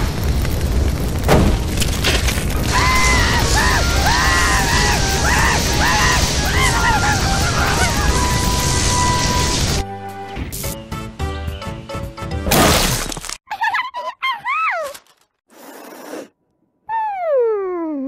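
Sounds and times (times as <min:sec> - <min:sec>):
loud cartoon bang: 0:01.3 - 0:01.7
fire extinguisher hissing: 0:02.6 - 0:09.9
cartoon character screaming: 0:02.7 - 0:08.3.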